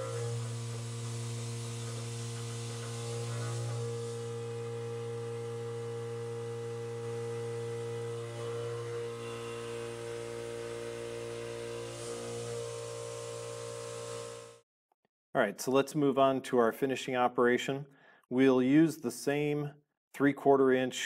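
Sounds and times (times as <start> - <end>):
milling machine cutting steel: 0.0 - 5.3.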